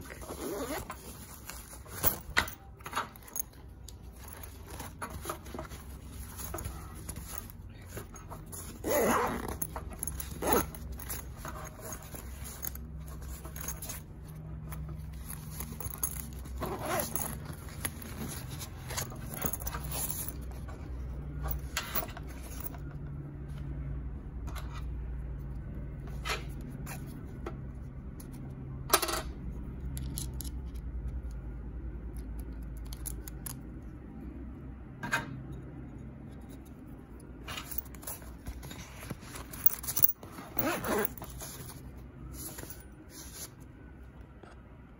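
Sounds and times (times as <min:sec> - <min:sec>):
zipper pulls: 0:00.0 - 0:02.6, 0:03.2 - 0:20.8, 0:37.4 - 0:43.6
fabric rustling: 0:00.0 - 0:22.8, 0:37.4 - 0:43.8.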